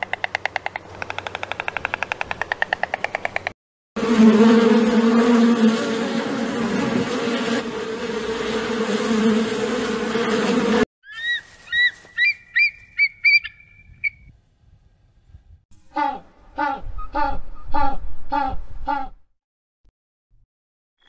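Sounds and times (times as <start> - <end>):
insect buzzing loudly: 4.0 - 12.2
eagle piping chirps: 11.0 - 14.3.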